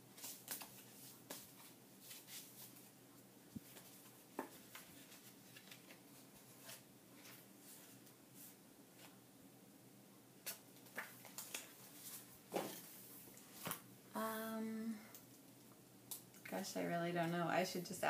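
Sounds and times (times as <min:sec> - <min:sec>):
photo prints rustling by hand: 0:00.1 - 0:02.9, 0:03.6 - 0:09.2, 0:10.4 - 0:13.9.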